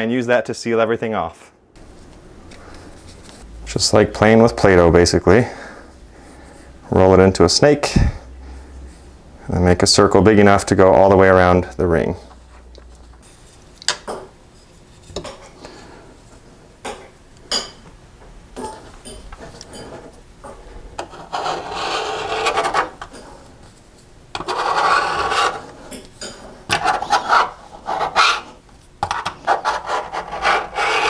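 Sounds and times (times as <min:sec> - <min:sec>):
scraping around sink drain: 0:24.4 - 0:26.0.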